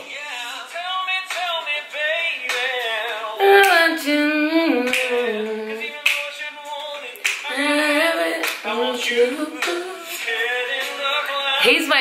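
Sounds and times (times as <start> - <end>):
vocal percussion hits: 3.4 - 6.3, 7.2 - 11.0
men singing close harmony: 5.1 - 11.8.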